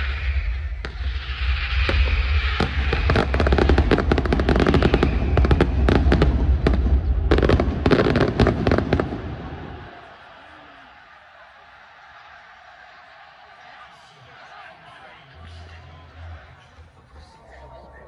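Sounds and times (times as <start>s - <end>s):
steady low rumble: 0.0s - 8.4s
fireworks bangs and crackles: 0.0s - 10.0s.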